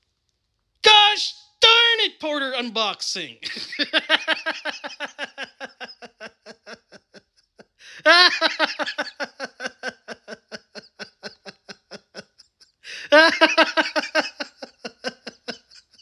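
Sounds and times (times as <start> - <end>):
person laughing: 3.4 - 16.0.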